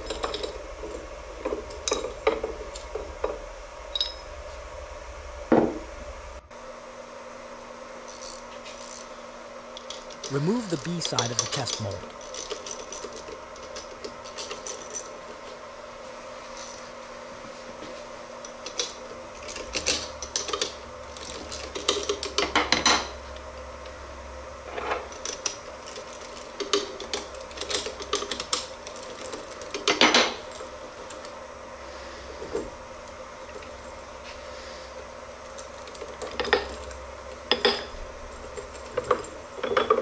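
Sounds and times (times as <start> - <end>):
faint steady hum: 0.0 - 40.0
hand tools clinking on metal: 10.3 - 13.2.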